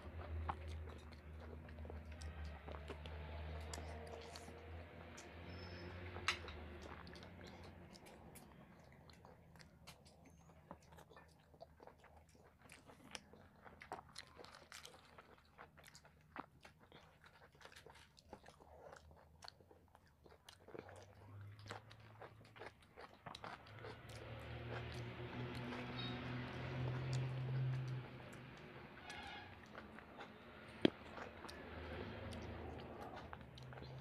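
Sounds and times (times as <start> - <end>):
people chewing and biting: 0.0 - 34.0
mouth smacks and clicks: 0.1 - 13.6.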